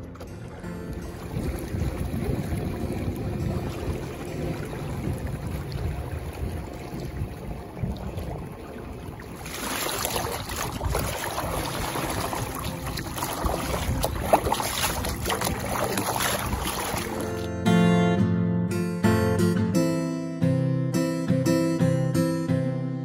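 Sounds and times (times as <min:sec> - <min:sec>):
water rushing along boat hull: 0:00.0 - 0:17.6.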